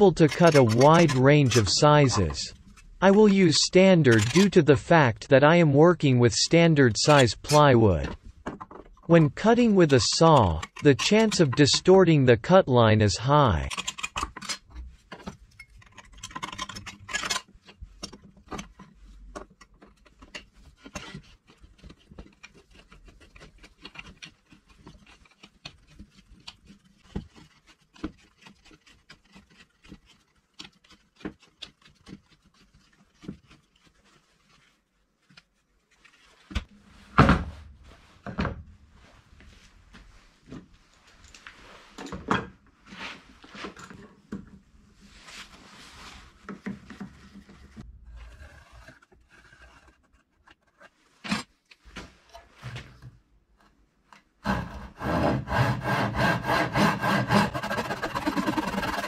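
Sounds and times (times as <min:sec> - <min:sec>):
tools and plywood clicking: 0:00.1 - 0:03.3, 0:07.0 - 0:11.9, 0:13.6 - 0:34.6, 0:46.4 - 0:59.0.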